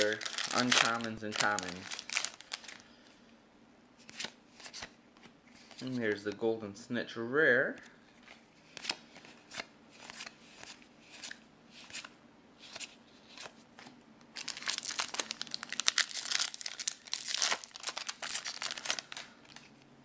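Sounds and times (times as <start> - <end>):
foil wrapper crinkling and tearing: 0.0 - 2.8, 14.4 - 19.7.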